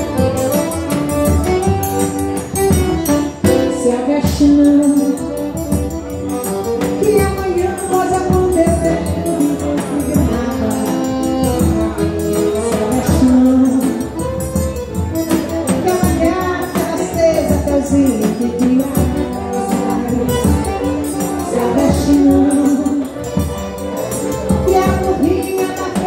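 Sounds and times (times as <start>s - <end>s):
woman singing: 3.0s - 5.8s, 6.8s - 14.4s, 15.7s - 23.5s, 24.5s - 26.0s.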